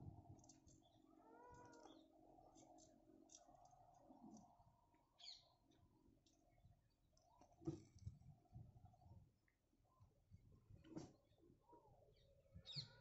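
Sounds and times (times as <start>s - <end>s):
faint animal call: 1.0s - 2.7s.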